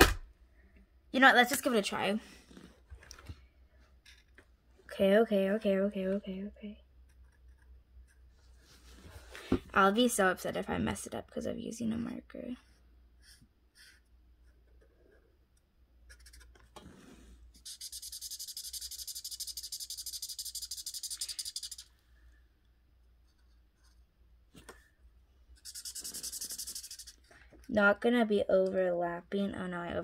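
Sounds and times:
marker rubbing on paper: 0:12.6 - 0:14.1, 0:16.1 - 0:16.6, 0:17.5 - 0:21.9, 0:25.5 - 0:27.3.

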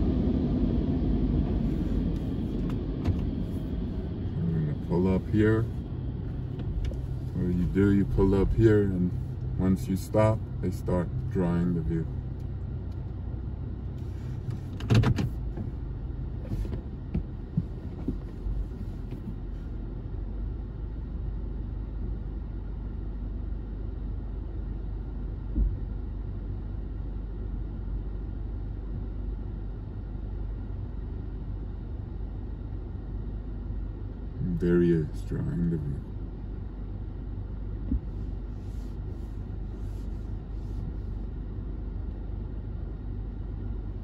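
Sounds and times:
car engine idling: 0:00.0 - 0:44.0.

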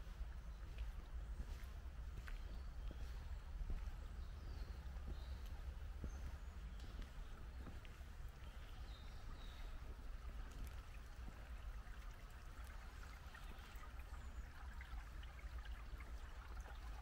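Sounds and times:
stream trickling over stones: 0:08.2 - 0:17.0.

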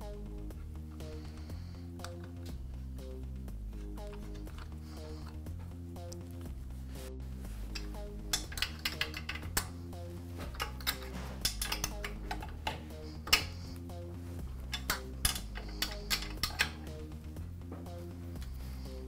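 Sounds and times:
wrench clinking on metal fitting: 0:07.8 - 0:09.8, 0:10.5 - 0:13.5, 0:14.7 - 0:16.9.

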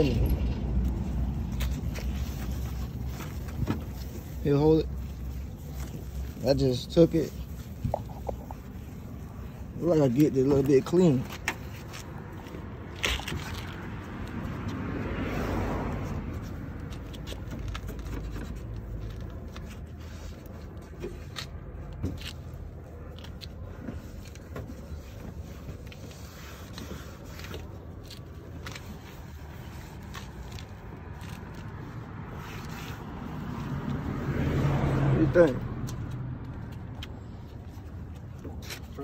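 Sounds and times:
scrubbing plastic lens: 0:07.4 - 0:10.3.

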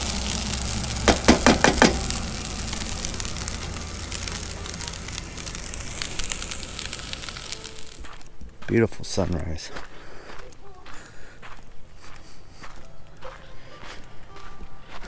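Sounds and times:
potatoes sizzling in a skillet: 0:00.0 - 0:08.2
metal spatula knocking on pan: 0:01.1 - 0:02.0.

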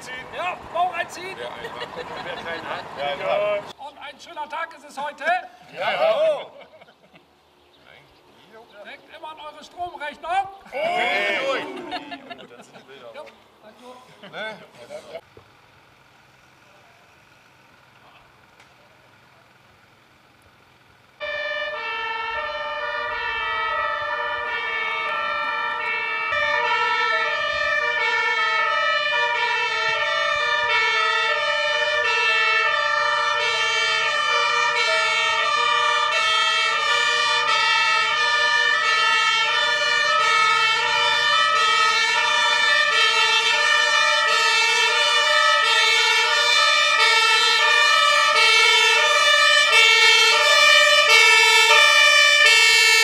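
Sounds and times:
two-tone fire engine sirens: 0:00.0 - 0:03.8, 0:19.0 - 0:53.0.

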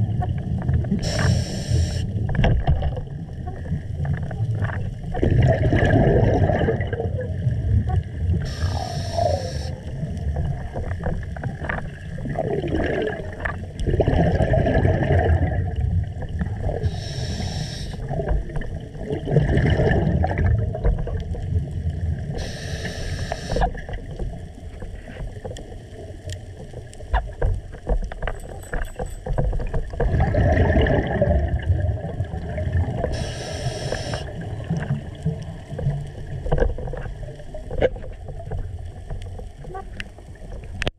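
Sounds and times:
gurgling exhaled bubbles: 0:00.0 - 0:26.8, 0:29.5 - 0:40.9
regulator inhale hiss: 0:01.0 - 0:02.1, 0:08.4 - 0:09.9, 0:16.8 - 0:18.1, 0:22.4 - 0:23.8, 0:33.1 - 0:34.4.

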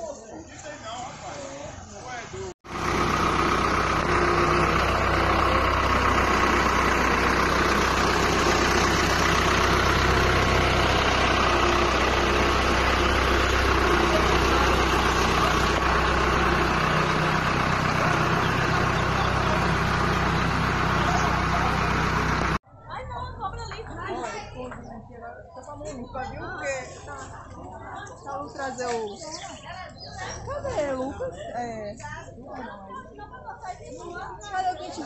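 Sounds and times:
tractor diesel engine idling: 0:01.9 - 0:28.4.

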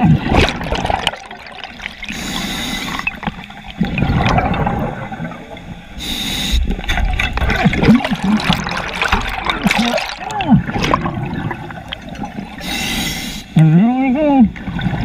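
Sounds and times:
exhaled air bubbling: 0:00.0 - 0:13.3
regulator inhalation hiss: 0:02.1 - 0:03.1, 0:06.0 - 0:06.8, 0:12.6 - 0:13.6.

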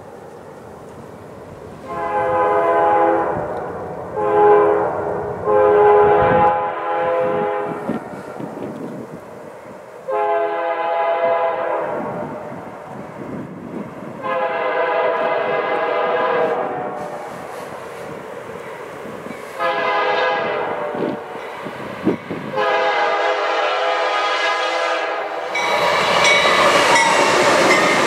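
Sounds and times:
train rumble: 0:00.0 - 0:28.0
locomotive air horn blasts: 0:01.8 - 0:03.5, 0:04.2 - 0:08.3, 0:10.1 - 0:12.6, 0:14.2 - 0:17.4, 0:19.6 - 0:21.4, 0:22.4 - 0:26.4.

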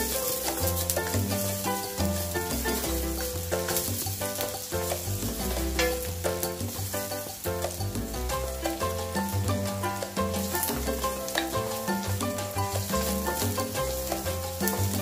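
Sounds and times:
background music: 0:00.0 - 0:15.0
onion sizzling in oil: 0:00.0 - 0:15.0
wooden spatula stirring in wok: 0:00.0 - 0:15.0.

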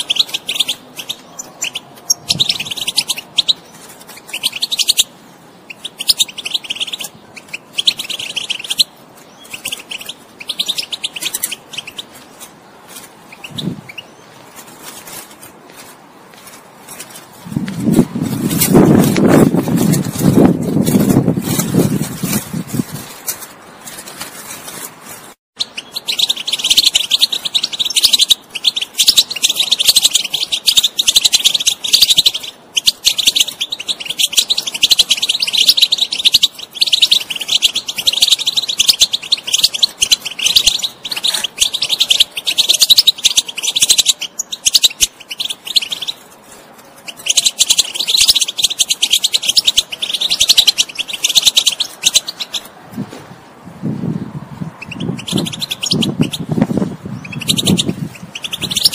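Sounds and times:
finch twittering song: 0:00.0 - 0:12.3, 0:13.2 - 0:14.4, 0:25.6 - 0:52.7, 0:54.0 - 0:58.9.

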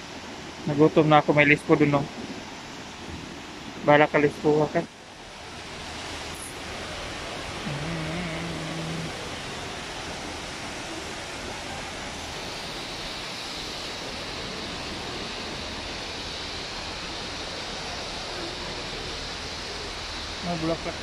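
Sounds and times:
water rushing down fountain: 0:05.3 - 0:21.0.

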